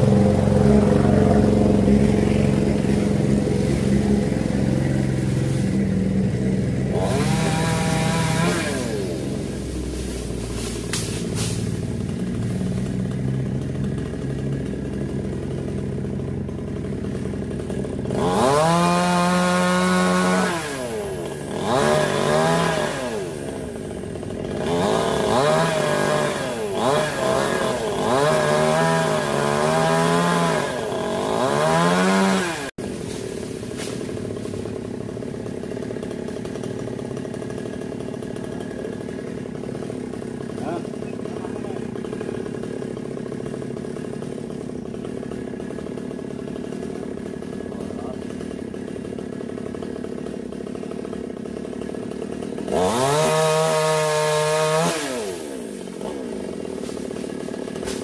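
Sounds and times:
chainsaw cutting wood: 0.0 - 58.0.

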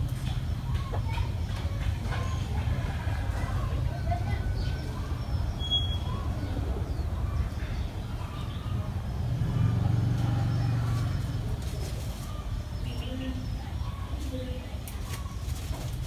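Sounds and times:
faint bird chirps: 4.4 - 8.8.

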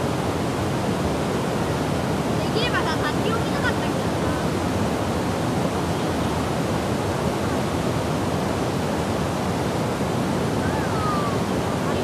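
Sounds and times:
waterfall rushing into pool: 0.0 - 12.0.

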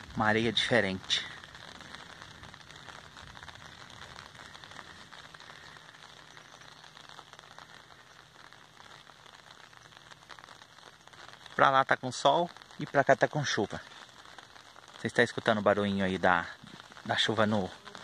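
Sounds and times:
rain pattering on umbrella: 0.0 - 18.0.

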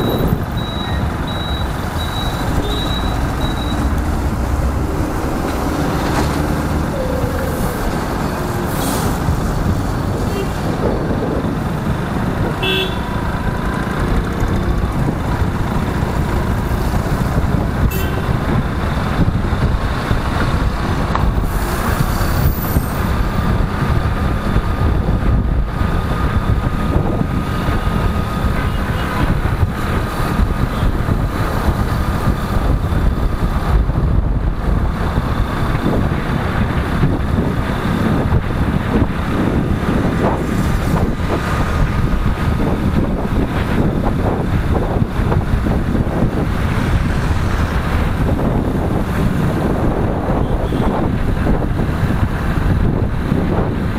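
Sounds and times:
road noise: 0.0 - 53.9
wind rush: 0.0 - 53.9.

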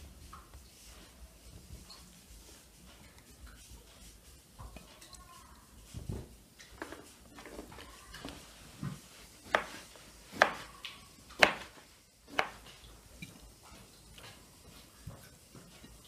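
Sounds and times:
knife chopping on wooden board: 9.4 - 10.7, 11.4 - 12.7.

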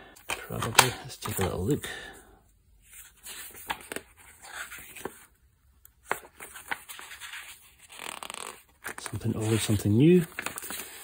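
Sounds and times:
paper rustling: 2.8 - 11.0.

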